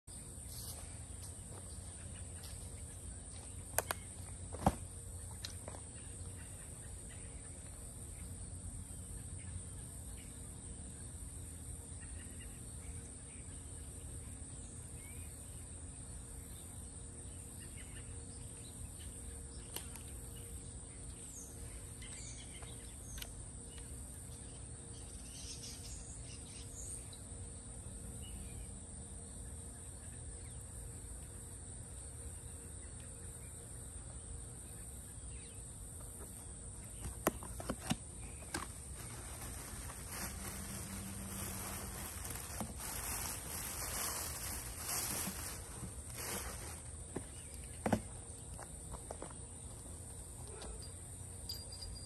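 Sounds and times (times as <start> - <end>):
high insect buzz: 38.2 - 48.0.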